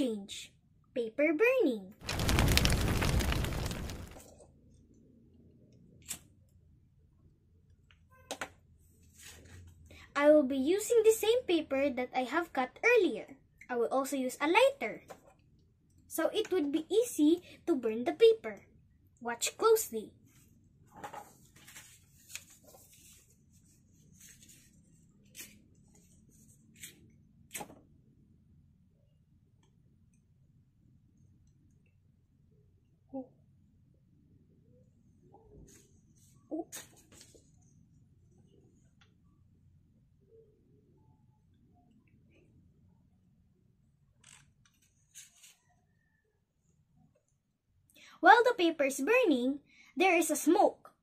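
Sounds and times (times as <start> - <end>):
paper strips rustling: 2.0 - 4.2.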